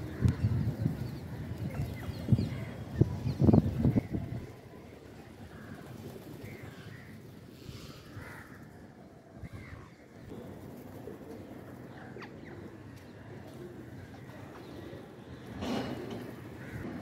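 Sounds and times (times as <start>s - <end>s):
low background noise: 0.0s - 17.0s
birds calling: 8.1s - 17.0s.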